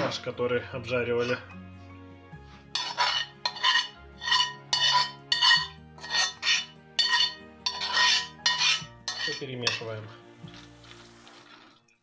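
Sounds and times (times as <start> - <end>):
faint background music: 0.0 - 12.0
spoon scraping frying pan: 2.5 - 11.9.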